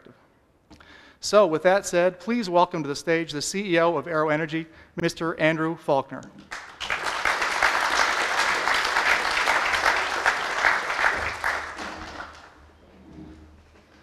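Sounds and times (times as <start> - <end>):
audience applauding: 6.5 - 12.6.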